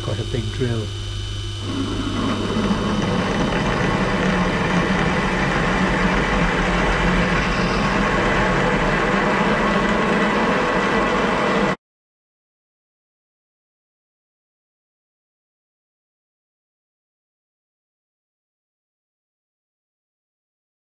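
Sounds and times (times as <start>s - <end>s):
drill cutting metal: 0.0s - 11.8s
lathe humming: 0.0s - 11.8s.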